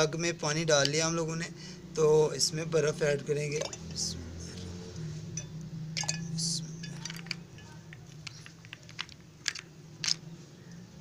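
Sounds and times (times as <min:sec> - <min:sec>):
ice cubes clinking against glass: 0:06.0 - 0:10.2.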